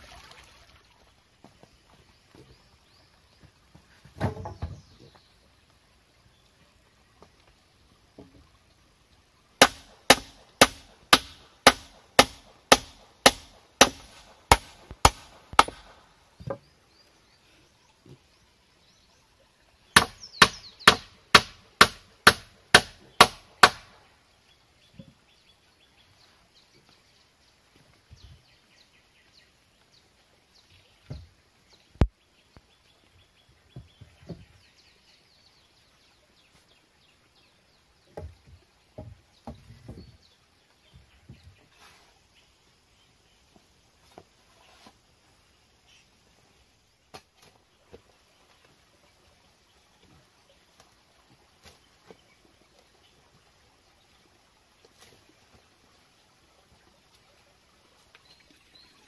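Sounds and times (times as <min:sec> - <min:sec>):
wooden poles knocking: 0:04.0 - 0:05.0, 0:09.6 - 0:16.7, 0:38.1 - 0:40.1
hammer driving nails into wood: 0:20.0 - 0:23.9.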